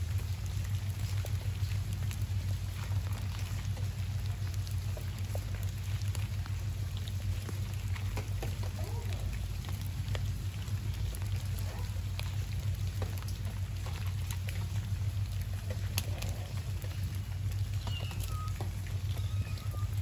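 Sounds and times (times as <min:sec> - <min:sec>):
cats crunching kibble: 0:00.0 - 0:20.0
steady low rumble: 0:00.0 - 0:20.0
faint wavering call: 0:17.8 - 0:20.0.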